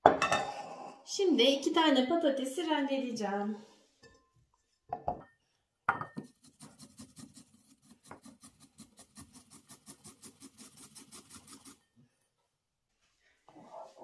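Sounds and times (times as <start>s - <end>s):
potato rasping on metal grater: 6.3s - 11.8s.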